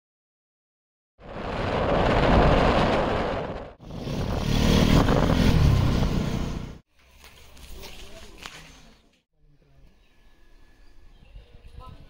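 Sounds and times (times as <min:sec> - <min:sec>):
wind on microphone: 0:01.2 - 0:06.0.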